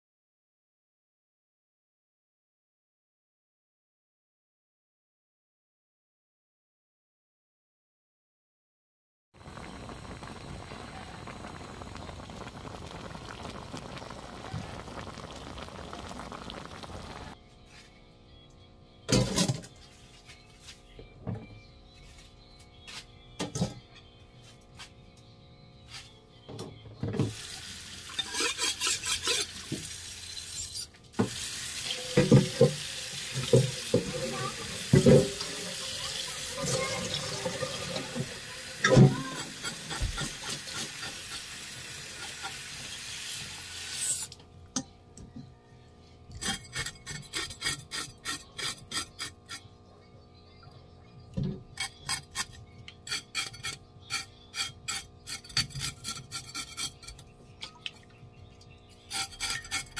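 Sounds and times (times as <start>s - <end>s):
tap water running into steel bowl: 27.2s - 30.2s, 31.2s - 44.4s
rhythmic rubbing strokes: 28.1s - 29.6s.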